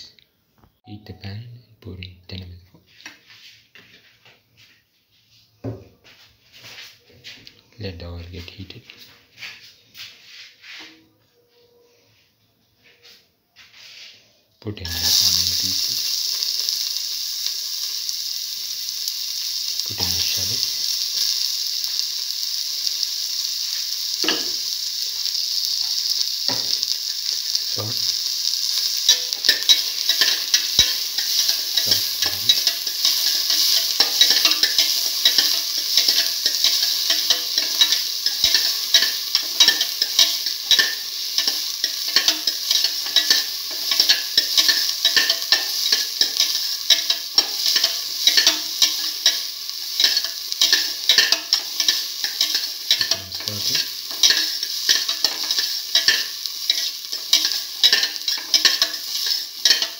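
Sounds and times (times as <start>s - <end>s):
onions sizzling in hot oil: 14.8s - 59.9s.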